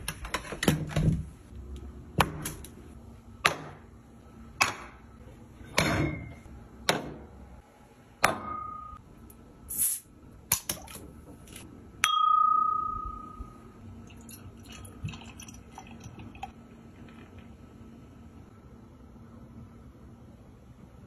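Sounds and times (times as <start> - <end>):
finger tapping glass ringing: 12.0 - 13.6
beer pouring into glass: 14.0 - 16.6.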